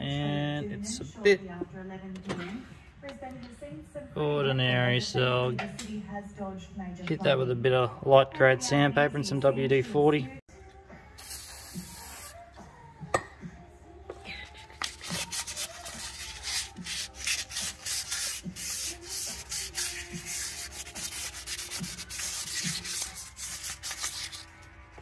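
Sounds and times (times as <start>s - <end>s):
sandpaper rubbing on metal: 14.6s - 24.7s.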